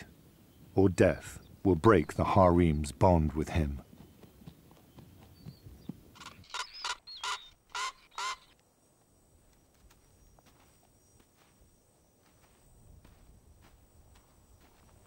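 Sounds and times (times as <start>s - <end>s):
bird harsh croaking call: 6.2s - 8.6s.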